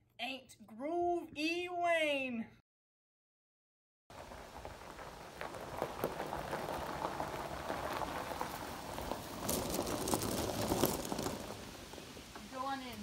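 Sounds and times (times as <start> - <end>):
tyres crunching on gravel: 4.1 - 13.0.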